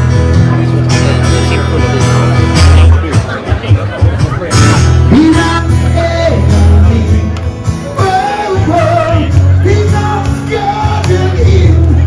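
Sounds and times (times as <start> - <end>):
heavy bass line: 0.0 - 12.0
person singing: 5.1 - 12.0.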